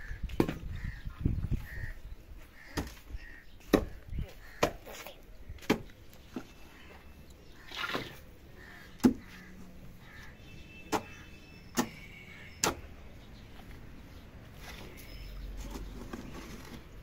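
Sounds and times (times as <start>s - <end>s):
soil scraping: 14.5s - 17.0s.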